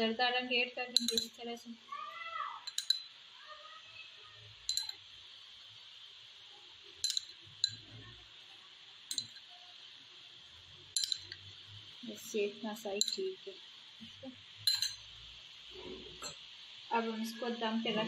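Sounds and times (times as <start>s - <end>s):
glass bowl clinking: 0.9s - 1.4s, 2.6s - 3.2s, 4.6s - 5.1s, 7.0s - 8.0s, 9.1s - 9.5s, 10.9s - 11.4s, 13.0s - 13.4s, 14.6s - 15.1s, 16.2s - 16.4s.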